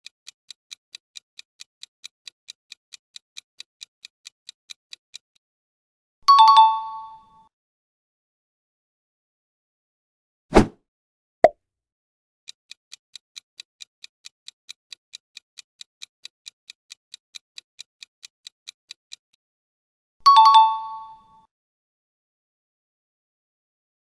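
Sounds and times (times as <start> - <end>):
clock-like ticking: 0.0 - 5.4, 12.5 - 19.3.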